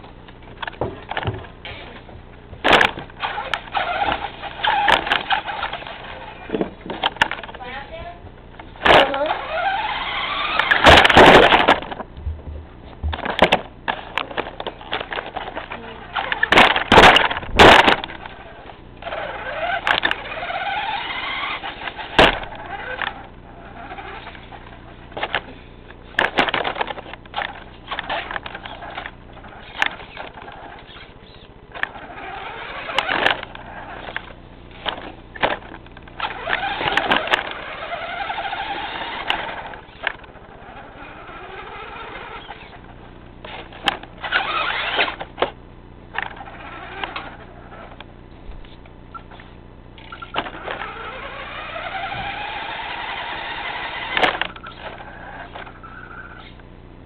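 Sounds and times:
chassis knocks and bumps: 0.0s - 56.7s
toy truck motor whining: 1.7s - 8.1s, 8.7s - 12.0s, 13.4s - 25.5s, 26.1s - 56.6s.

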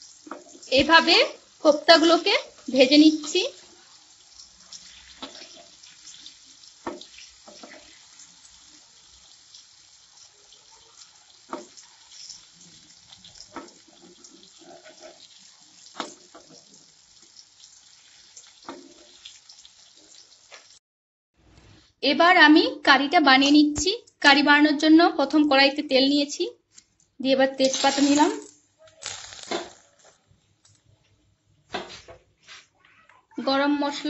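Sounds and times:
food deep-frying in oil: 0.0s - 20.8s, 27.5s - 30.8s
oil popping and crackling: 0.0s - 20.8s, 27.6s - 30.9s.

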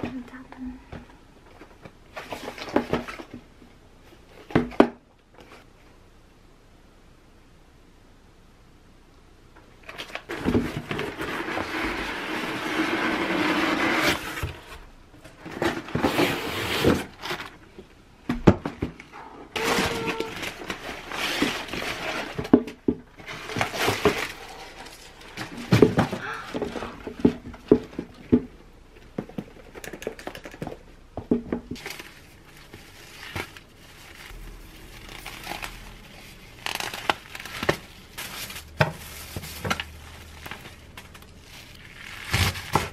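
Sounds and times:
cardboard box scraping: 10.3s - 14.8s, 15.5s - 17.5s
paper and tissue crinkling: 19.6s - 22.6s, 31.8s - 42.9s
packaging rustling: 19.6s - 27.3s, 31.7s - 42.9s.

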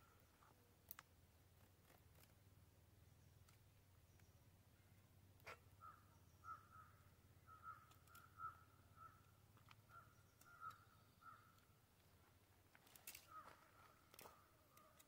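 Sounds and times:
faint clicks: 3.4s - 4.3s, 7.8s - 8.4s, 9.2s - 12.1s
faint bird calling: 4.1s - 12.2s, 12.9s - 15.0s.

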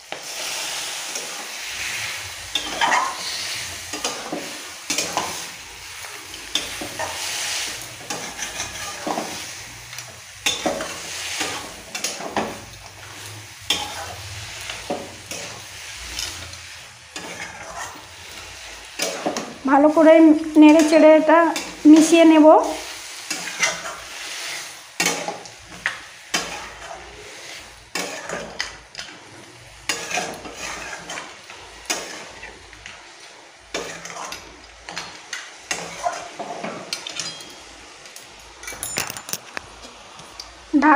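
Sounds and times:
food frying sizzle: 0.0s - 40.9s
spatula scraping metal pan: 6.5s - 9.5s, 10.4s - 16.5s, 17.1s - 18.4s, 23.3s - 25.4s, 26.3s - 32.6s, 33.7s - 35.1s.

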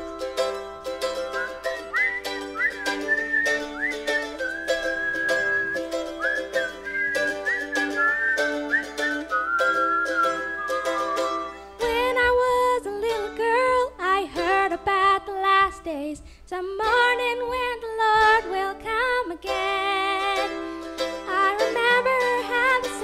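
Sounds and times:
acoustic string band playing: 0.0s - 13.7s, 19.4s - 23.0s.

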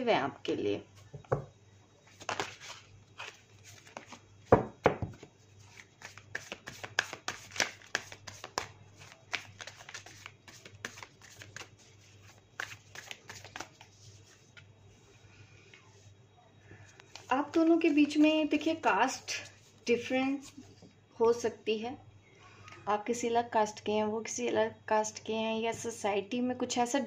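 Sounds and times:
cards being shuffled: 2.1s - 4.2s, 5.1s - 14.6s.

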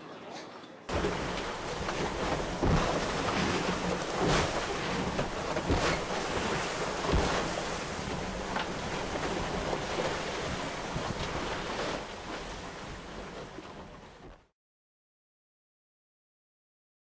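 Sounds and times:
heavy splashes: 0.9s - 13.7s
waves breaking over deck: 0.9s - 14.5s.

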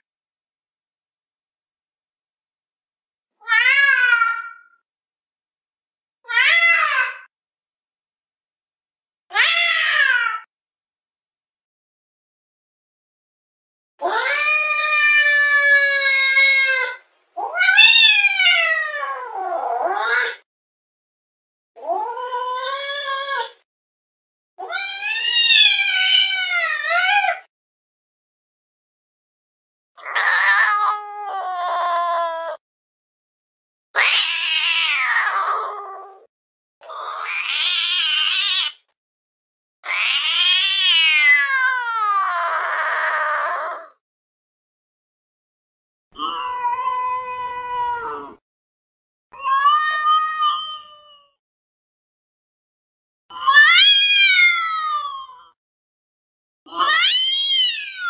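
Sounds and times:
cat meowing: 3.4s - 4.8s, 6.3s - 7.3s, 9.3s - 10.5s, 14.0s - 20.4s, 24.6s - 27.5s, 30.0s - 32.6s, 34.0s - 36.3s, 36.9s - 38.8s, 39.8s - 44.0s, 46.2s - 48.4s, 49.3s - 51.4s, 53.3s - 55.5s, 56.7s - 58.0s.

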